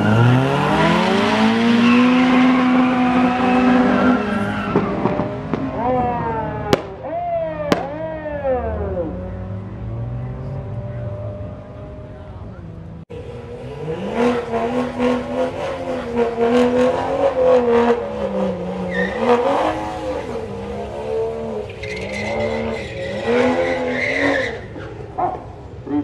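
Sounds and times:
car engine at high revs: 0.0 - 6.8, 8.3 - 26.0
tyre squeal: 18.8 - 20.2, 21.6 - 25.0.

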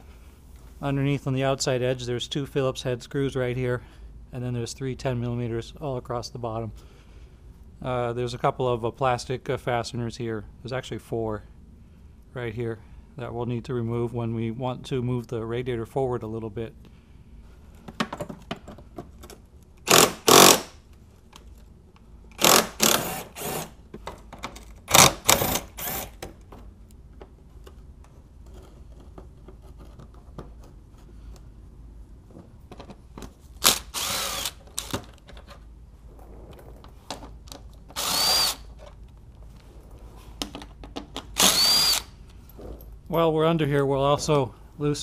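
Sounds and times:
cordless drill whirring: 19.9 - 20.7, 22.4 - 23.7, 24.9 - 26.2, 33.6 - 34.9, 37.9 - 38.7, 41.4 - 42.1.

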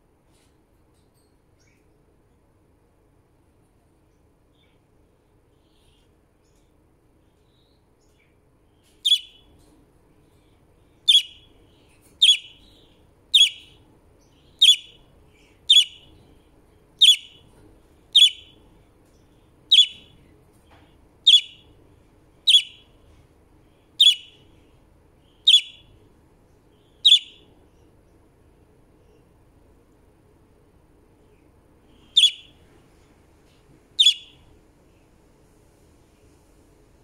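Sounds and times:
budgie chirping: 9.0 - 9.4, 11.0 - 11.5, 12.2 - 13.8, 14.4 - 16.2, 17.0 - 17.5, 18.1 - 18.6, 19.7 - 20.2, 21.2 - 21.7, 22.4 - 22.9, 24.0 - 24.4, 25.3 - 25.9, 26.8 - 27.4, 31.9 - 32.6, 34.0 - 34.4.

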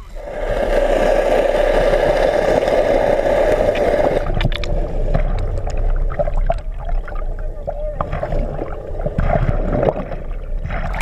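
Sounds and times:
muffled underwater water rushing: 0.0 - 11.0
water sloshing: 3.7 - 11.0
sharp clicks and pops: 4.2 - 7.2.

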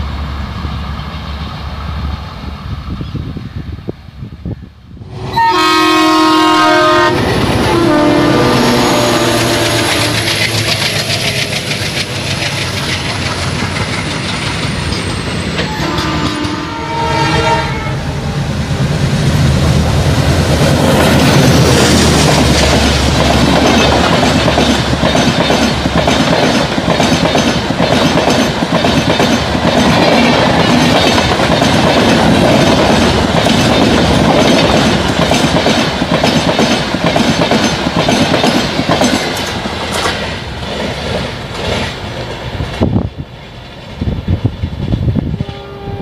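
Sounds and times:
diesel locomotive engine drone: 0.0 - 46.0
train wheels clickety-clack: 9.3 - 16.6, 19.7 - 45.2.

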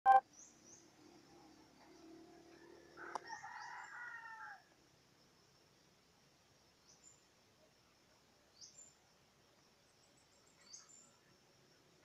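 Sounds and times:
faint bird chirps: 0.1 - 4.6, 6.7 - 11.9
rooster crowing: 2.8 - 4.7.

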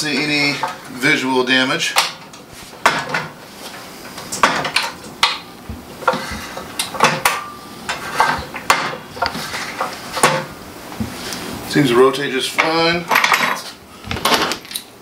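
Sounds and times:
metal saw parts clanking and rattling: 13.1 - 14.9.

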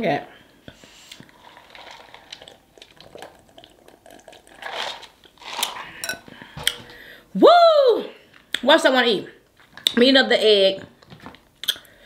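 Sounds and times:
wet mouth clicks: 11.6 - 11.9.

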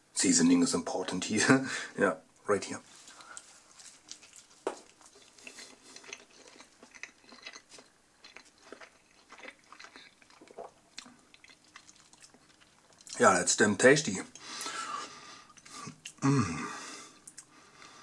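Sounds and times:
chewing mouth sounds: 3.1 - 13.2.

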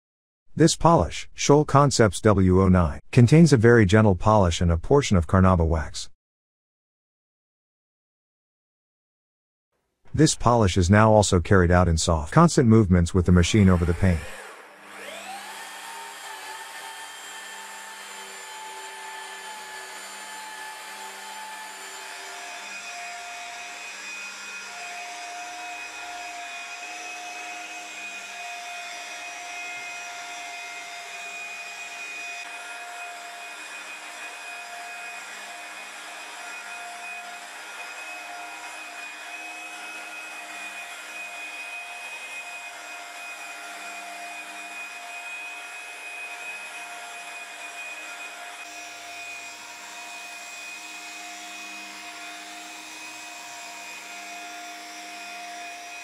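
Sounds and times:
electric car polisher whining: 13.6 - 56.0.

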